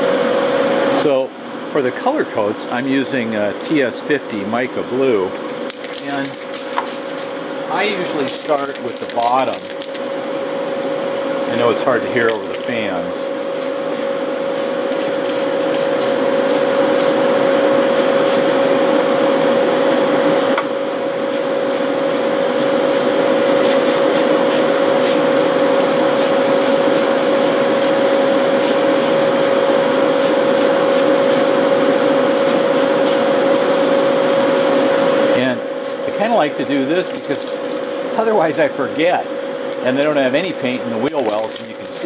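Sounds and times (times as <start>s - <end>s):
exhaust fans humming: 0.0s - 42.0s
aerosol spray can hissing: 13.6s - 17.2s, 17.9s - 18.5s, 21.3s - 25.3s, 26.2s - 28.0s, 28.6s - 29.2s, 30.2s - 31.6s, 32.4s - 34.0s, 35.8s - 36.1s.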